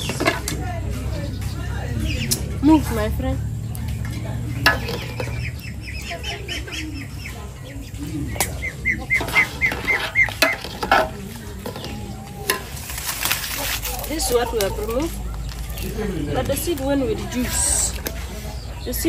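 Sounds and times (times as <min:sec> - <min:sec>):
bird chirping: 0:01.1 - 0:12.8, 0:13.5 - 0:19.0.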